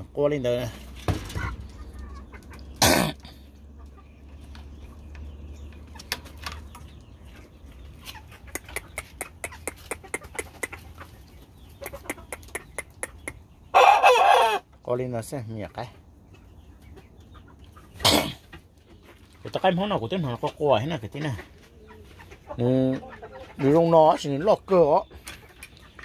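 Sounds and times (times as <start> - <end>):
rooster clucking: 8.0 - 14.7, 20.8 - 24.6
quick sharp clicks and taps: 11.8 - 13.4
rooster loud call: 13.8 - 14.7.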